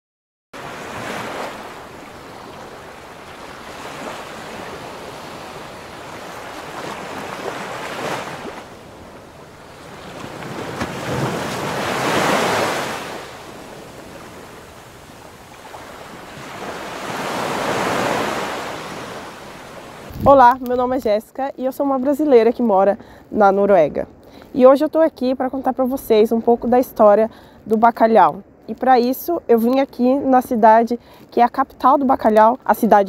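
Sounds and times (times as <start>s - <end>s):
sea waves washing: 0.6s - 21.3s.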